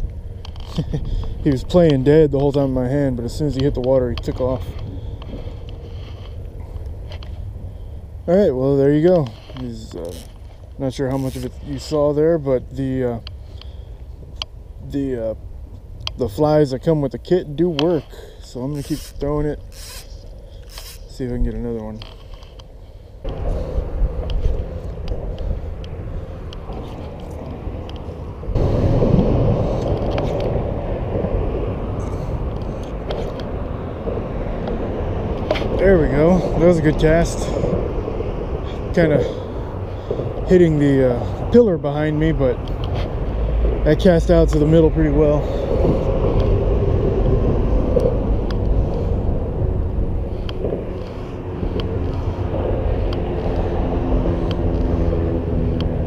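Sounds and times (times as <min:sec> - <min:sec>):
road traffic rumble: 0:00.0 - 0:56.0
vehicle engine: 0:00.0 - 0:56.0
rush of low noise: 0:23.1 - 0:56.0.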